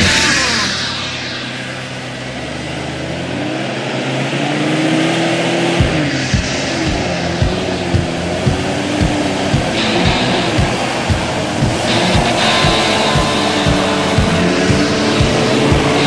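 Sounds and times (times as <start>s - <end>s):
low thumps: 5.8s - 16.0s.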